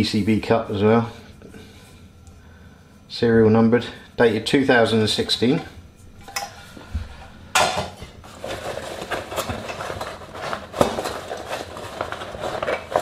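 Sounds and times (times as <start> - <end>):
fabric rustling and scraping: 8.2 - 13.0.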